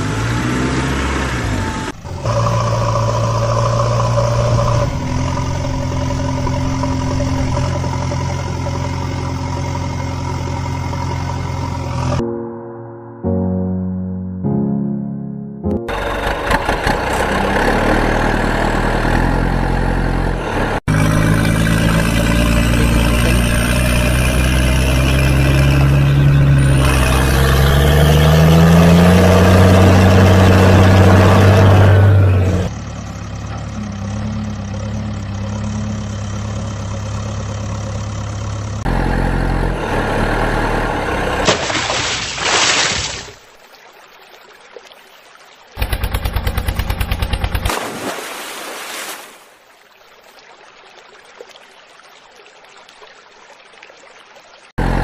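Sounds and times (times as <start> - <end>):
diesel engine idling and revving: 0.0 - 12.2, 15.8 - 41.5, 45.8 - 47.7, 54.8 - 55.0
muddy water splash: 41.1 - 54.9.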